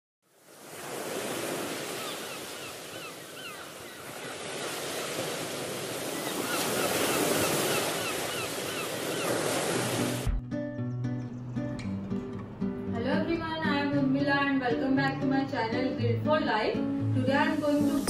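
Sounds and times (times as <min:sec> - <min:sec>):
waves washing on shore: 0:00.4 - 0:10.3
plucked guitar music: 0:10.3 - 0:18.0.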